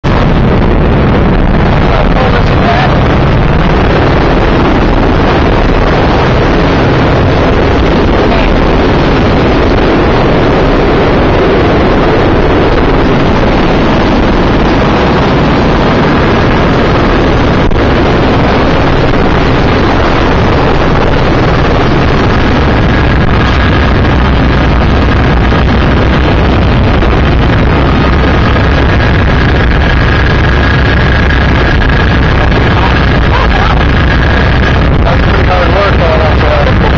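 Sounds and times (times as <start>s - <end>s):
faint high whine: 0.0s - 36.9s
helicopter engine and rotor: 0.7s - 36.9s.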